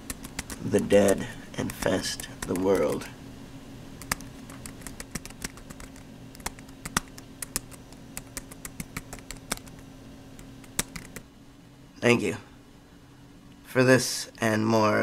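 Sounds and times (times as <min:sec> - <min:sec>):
computer keyboard typing: 0:00.0 - 0:03.1, 0:04.0 - 0:09.8, 0:10.4 - 0:11.2
steady low hum: 0:00.0 - 0:15.0.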